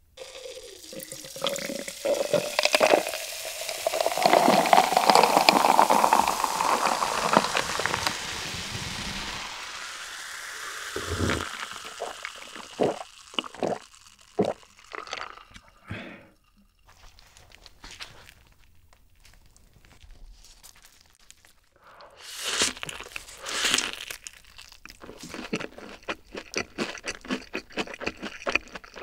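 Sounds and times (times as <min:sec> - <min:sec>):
cola pouring and fizzing over ice: 0:00.1 - 0:17.8
person gulping and swallowing: 0:00.2 - 0:08.4, 0:10.8 - 0:16.7.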